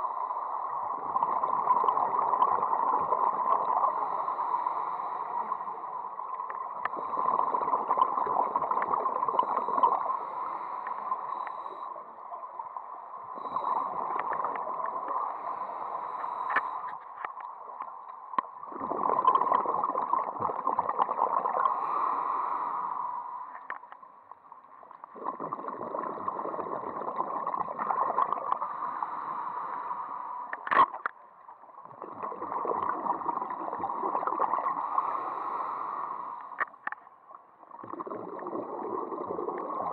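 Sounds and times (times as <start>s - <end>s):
scuba regulator bubble bursts: 18.7s - 21.7s, 25.1s - 28.5s, 31.9s - 34.9s, 37.8s - 39.9s.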